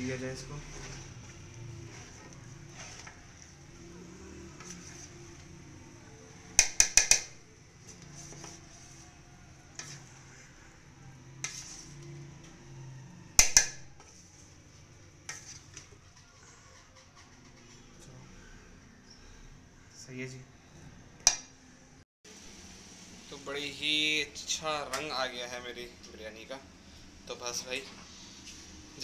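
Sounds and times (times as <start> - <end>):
metal ladle scraping pot: 0.6 - 5.5, 11.3 - 12.3, 15.2 - 18.0.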